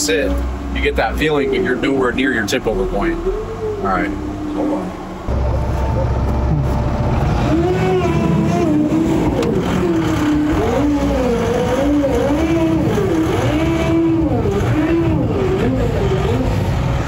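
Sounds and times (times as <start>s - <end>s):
diesel vehicle driving through snow: 0.0s - 17.0s
engine whine rising and falling: 0.0s - 17.0s.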